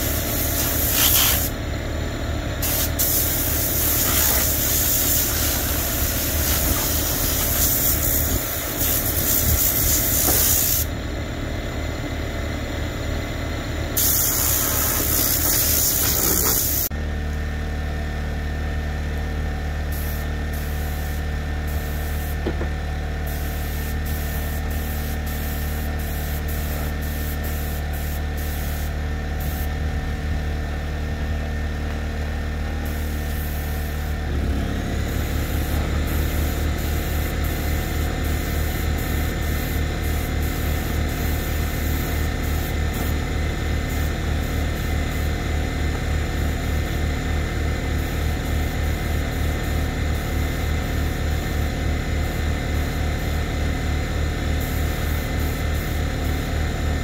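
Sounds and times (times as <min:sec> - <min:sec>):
hissing spray: 0:00.0 - 0:01.5, 0:02.6 - 0:10.9, 0:14.0 - 0:16.9
engine humming: 0:29.4 - 0:44.9.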